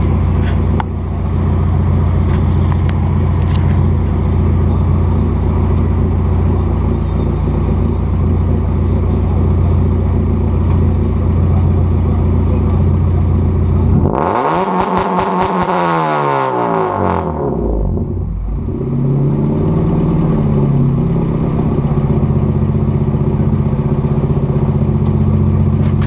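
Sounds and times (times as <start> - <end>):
car engine revving and idling: 0.0 - 26.0
exhaust crackling: 0.0 - 26.0.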